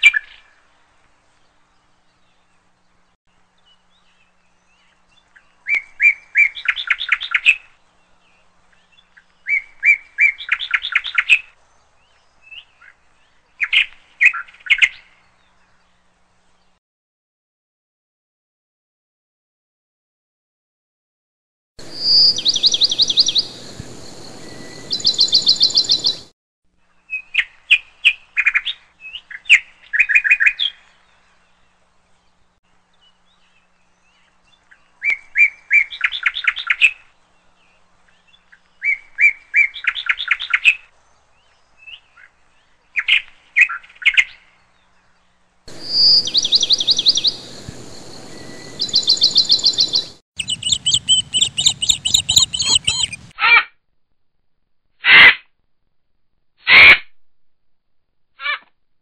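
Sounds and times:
songbird chirping phrases: 0:00.0 - 0:16.8, 0:21.8 - 0:53.3
songbird trills: 0:03.6 - 0:16.0, 0:21.8 - 0:53.3
light hiss: 0:45.6 - 0:50.0.

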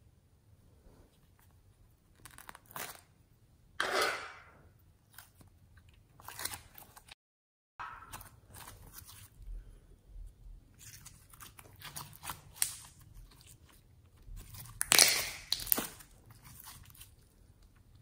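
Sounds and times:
slime crunchy crackling: 0:14.4 - 0:17.1.

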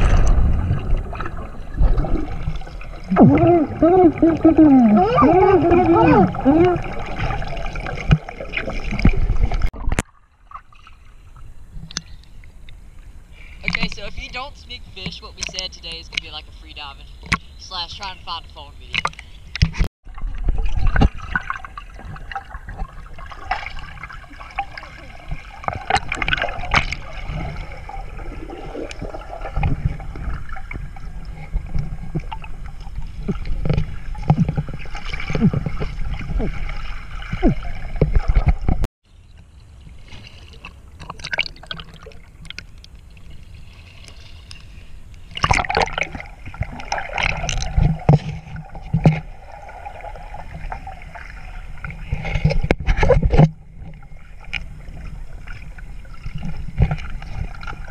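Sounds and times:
underwater gurgling and bubbling: 0:00.0 - 0:10.6, 0:20.1 - 0:38.8, 0:45.4 - 0:57.9
underwater clicks: 0:11.8 - 0:12.8, 0:15.0 - 0:16.4, 0:18.9 - 0:22.9, 0:25.6 - 0:27.2, 0:44.0 - 0:49.3.

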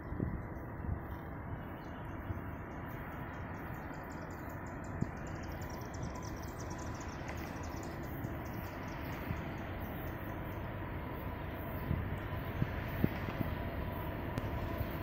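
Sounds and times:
steady low rumble: 0:00.0 - 0:15.0
insects chirping: 0:02.9 - 0:13.0.

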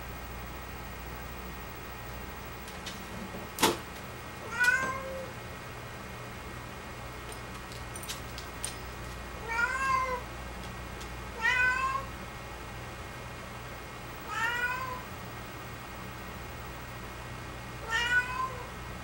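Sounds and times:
cat meowing: 0:04.5 - 0:05.3, 0:09.4 - 0:10.2, 0:11.4 - 0:12.1, 0:14.3 - 0:15.1, 0:17.8 - 0:18.7.

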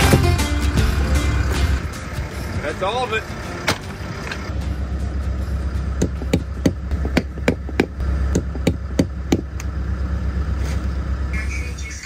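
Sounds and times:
hammer striking log wall: 0:06.0 - 0:09.7.

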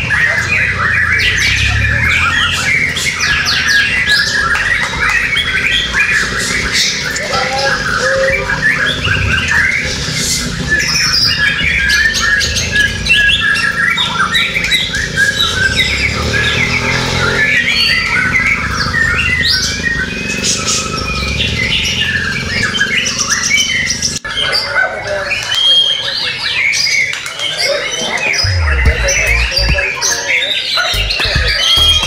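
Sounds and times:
chorus of birds singing: 0:00.0 - 0:32.0.

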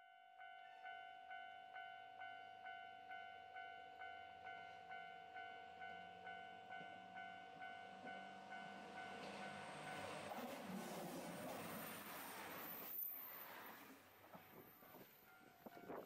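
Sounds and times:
level crossing warning bell clanging: 0:14.6 - 0:16.0.

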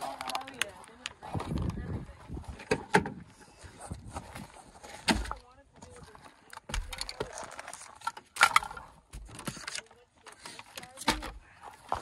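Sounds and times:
tools and packaging rattling: 0:00.0 - 0:01.7, 0:04.4 - 0:12.0.

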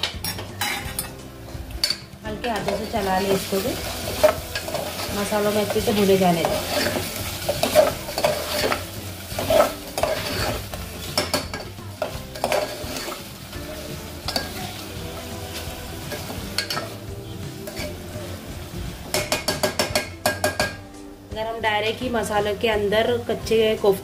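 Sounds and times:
oil sizzling: 0:00.0 - 0:21.3
spoon scraping in pot: 0:00.2 - 0:01.2, 0:02.6 - 0:13.3, 0:17.6 - 0:18.1.

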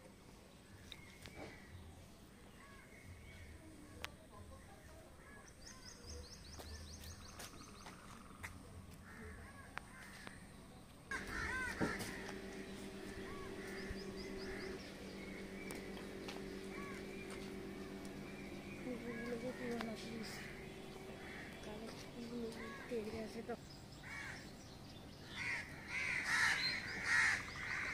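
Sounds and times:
crows cawing: 0:09.0 - 0:10.4, 0:11.1 - 0:14.9, 0:16.3 - 0:17.4, 0:19.0 - 0:23.1, 0:24.0 - 0:24.5, 0:25.2 - 0:27.9
low hum: 0:10.4 - 0:27.9
small bird chirping: 0:12.1 - 0:25.3.

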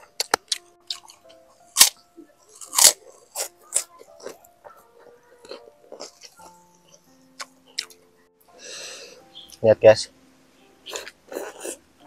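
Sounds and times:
person chewing crunchy food: 0:00.0 - 0:08.0, 0:10.9 - 0:11.8.

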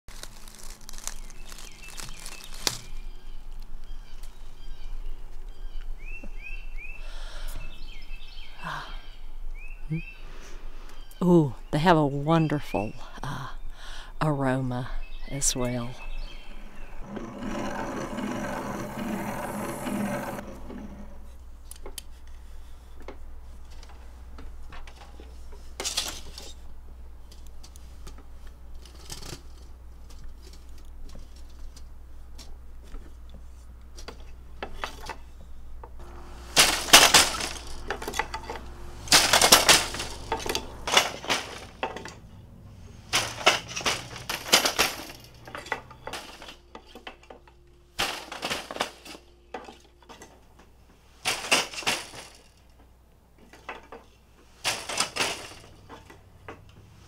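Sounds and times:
loom clattering and rattling: 0:16.4 - 0:21.4, 0:32.8 - 0:57.0
loom clicking and tapping: 0:17.0 - 0:21.0, 0:36.0 - 0:42.3.

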